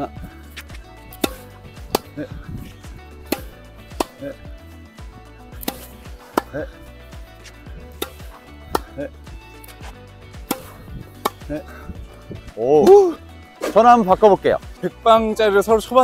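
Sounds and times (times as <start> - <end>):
background music: 0.0 - 16.0
tennis racket hitting ball: 0.2 - 11.7
ball bouncing on court: 0.6 - 2.2, 3.3 - 4.4, 7.8 - 9.0, 10.4 - 11.6.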